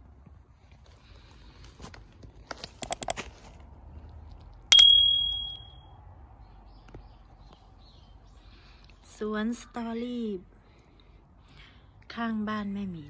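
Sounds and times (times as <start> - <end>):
quick clicks: 2.6 - 3.2
bright bell ding: 4.7 - 5.7.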